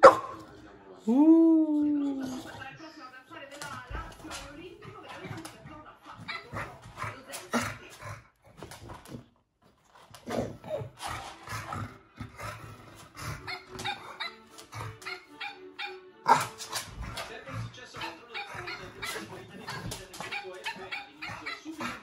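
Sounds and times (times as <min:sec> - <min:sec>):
dog barking and whining: 0:13.3 - 0:17.2, 0:18.0 - 0:22.0.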